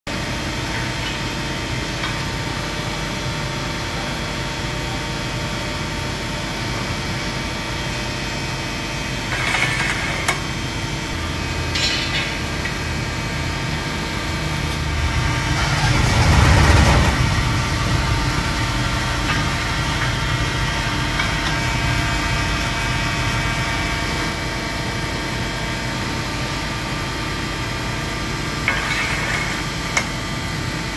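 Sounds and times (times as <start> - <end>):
hydraulic pump humming: 9.3 - 24.7.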